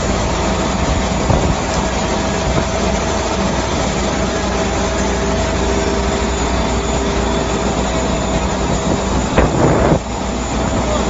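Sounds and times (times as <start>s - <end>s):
machinery engine drone with whine: 0.0s - 11.0s.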